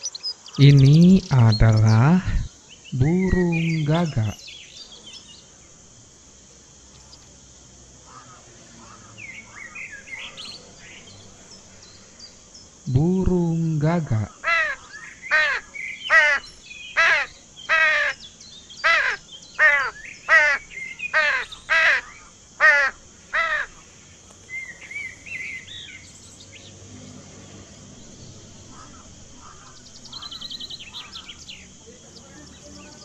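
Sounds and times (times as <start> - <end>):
small birds chirping: 0.0 - 33.0
crow cawing: 8.0 - 10.3, 14.3 - 18.2, 18.8 - 23.8, 28.7 - 31.4.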